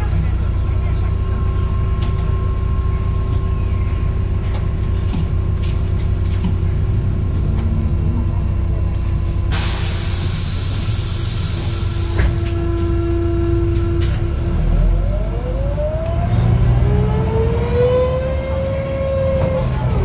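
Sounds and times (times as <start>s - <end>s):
bus diesel engine rumbling: 0.0s - 20.0s
compressed air hiss: 9.5s - 12.2s.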